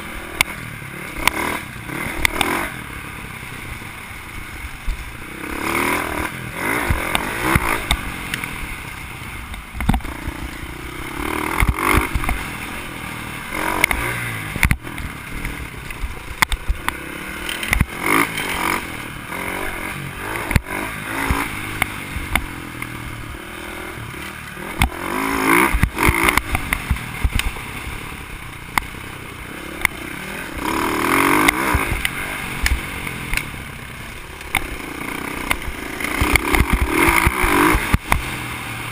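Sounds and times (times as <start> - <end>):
dirt bike engine revving: 0.0 - 38.9
bike knocks and rattles: 9.4 - 10.7, 11.4 - 12.6, 13.7 - 19.0, 24.7 - 27.8, 35.4 - 38.5.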